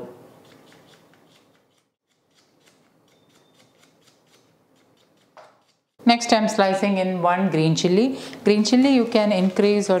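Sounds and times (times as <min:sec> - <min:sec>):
knife slicing onion: 0:00.3 - 0:05.9.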